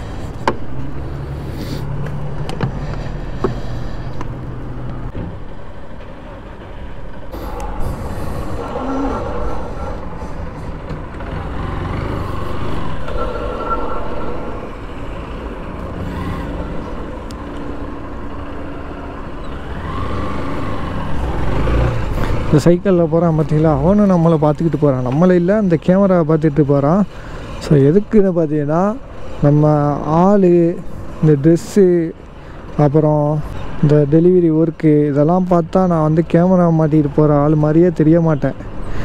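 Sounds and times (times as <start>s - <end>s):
street traffic noise: 0.0s - 39.0s.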